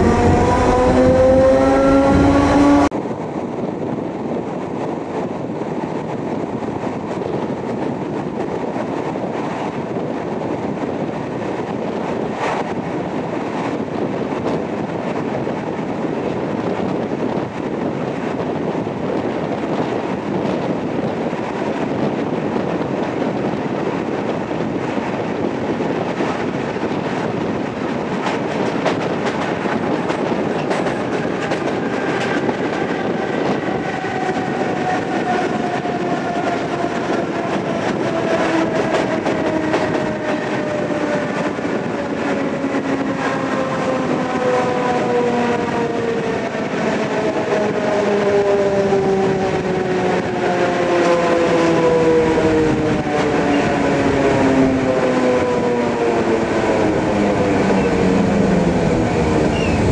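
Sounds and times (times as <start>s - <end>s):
rising whine: 0.0s - 2.9s
train rumbling along track: 0.0s - 59.9s.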